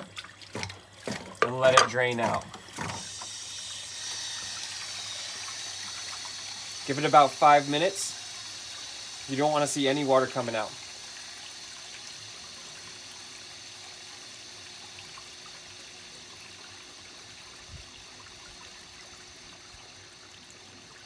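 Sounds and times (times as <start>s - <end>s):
water trickling onto concrete: 0.0s - 21.0s.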